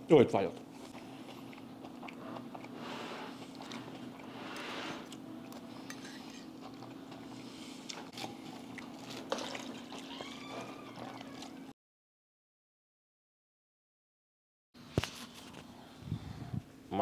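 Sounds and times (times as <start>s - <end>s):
steady low hum: 0.0s - 9.6s
chewing noises: 0.4s - 11.7s
fork scraping on plate: 5.8s - 6.6s.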